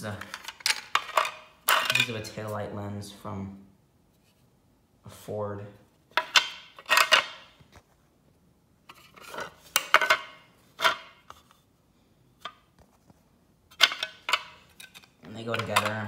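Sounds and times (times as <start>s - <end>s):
plastic pieces clacking on concrete: 0.0s - 2.2s, 6.1s - 7.6s, 8.9s - 11.4s, 13.7s - 16.0s.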